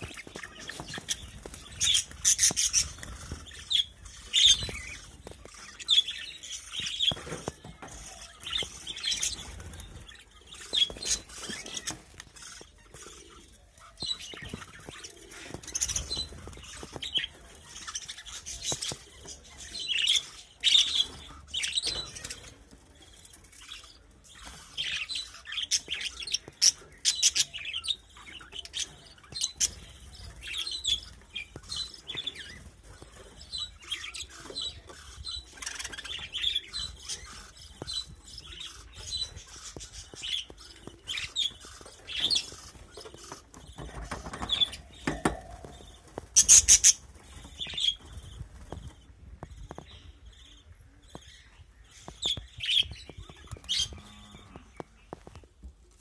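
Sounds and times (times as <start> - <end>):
budgerigars chirping: 0.0 - 22.4, 23.8 - 54.0.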